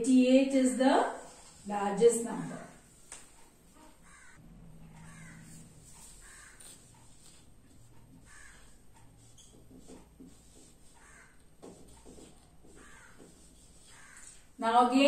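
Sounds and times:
marker strokes on whiteboard: 0.0s - 4.2s, 5.1s - 15.0s
crows cawing: 3.8s - 6.8s, 8.1s - 8.8s, 10.9s - 11.4s, 12.6s - 14.4s.

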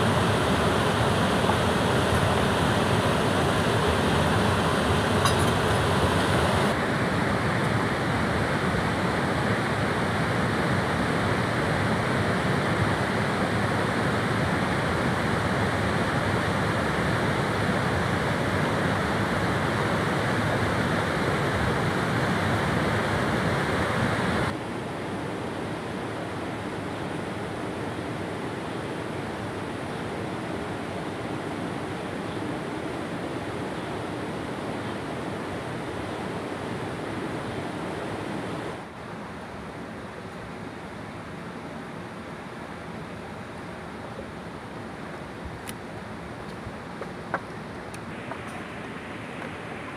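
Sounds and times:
river rapids rushing over rocks: 0.0s - 24.6s.

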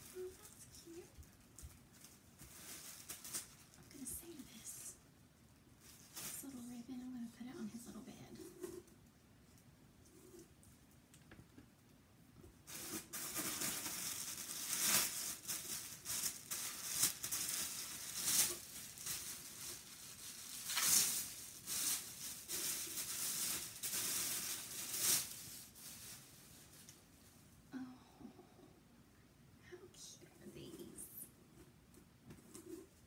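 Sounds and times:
packing material rustling and crinkling: 0.0s - 4.6s, 5.8s - 6.8s, 12.6s - 27.4s.

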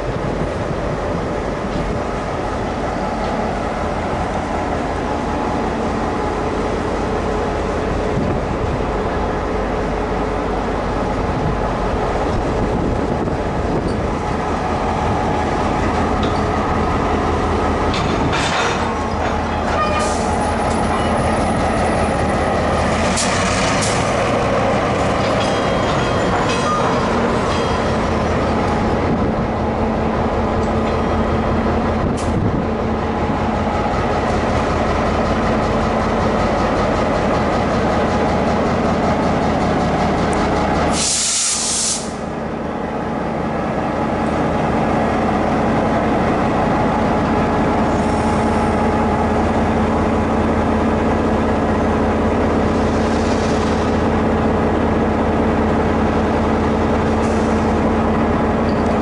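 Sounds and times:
diesel locomotive droning: 0.0s - 59.0s
metallic squeaks and clanks: 18.4s - 21.3s.

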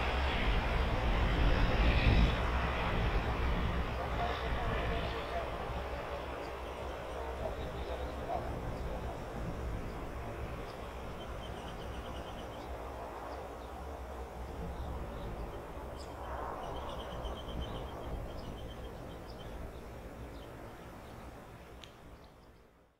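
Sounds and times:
distant turboprop engines rumbling: 0.0s - 22.9s
small birds chirping: 6.2s - 22.8s.

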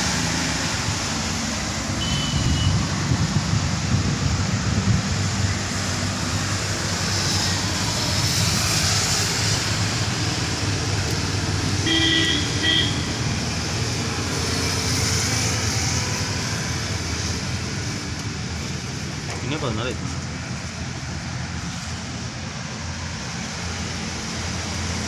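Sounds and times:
rain: 0.0s - 25.0s
tyres hissing on wet road: 0.0s - 25.0s
car horn beeps: 2.0s - 2.8s, 11.8s - 13.1s.

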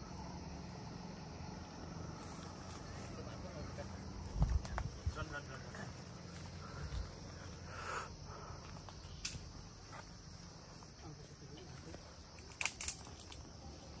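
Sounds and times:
insects chirping: 0.0s - 14.0s
sharp clicks: 12.4s - 13.5s.

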